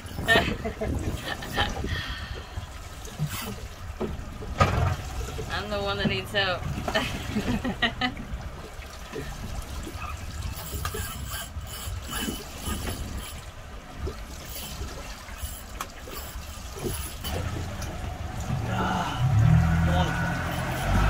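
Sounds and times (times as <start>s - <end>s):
boat engine rumbling: 0.0s - 21.0s
water washing against hull: 0.0s - 21.0s.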